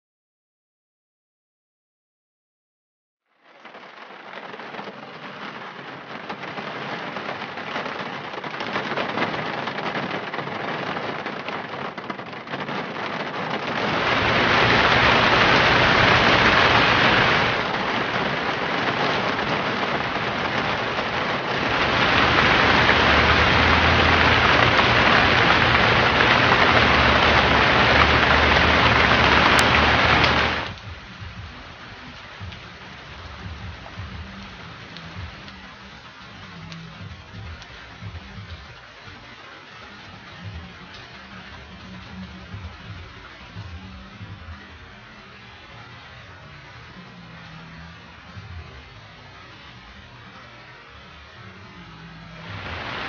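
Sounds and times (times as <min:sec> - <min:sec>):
heavy rain pouring: 0:03.4 - 0:53.0
low rumble: 0:13.8 - 0:39.2.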